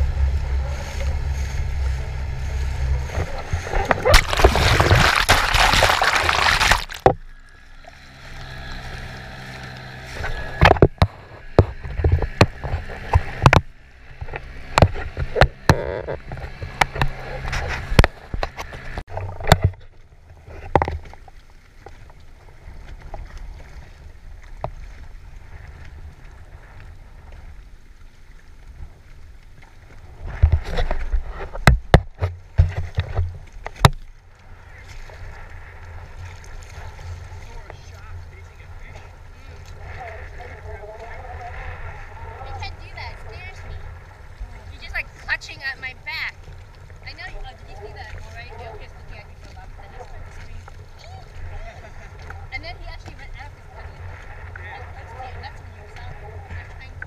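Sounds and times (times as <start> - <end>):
sharp knocks and splashes: 0.0 - 40.4
water lapping along hull: 0.0 - 57.0.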